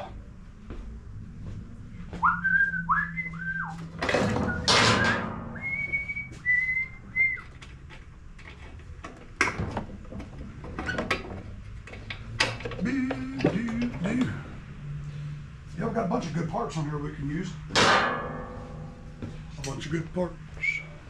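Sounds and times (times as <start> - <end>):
person whistling: 2.2 - 3.8, 4.5 - 7.5, 20.6 - 21.0.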